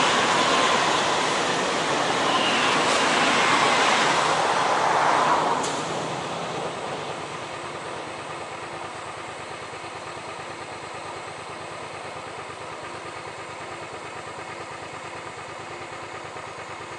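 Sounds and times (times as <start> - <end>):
passing car: 0.0 - 9.4
passing train: 0.0 - 15.2
motorcycle engine idling: 6.8 - 16.9.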